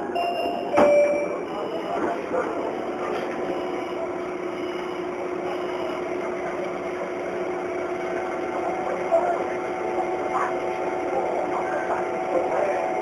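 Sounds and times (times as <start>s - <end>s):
electric train humming: 0.0s - 13.0s
short high beeps: 0.1s - 2.8s.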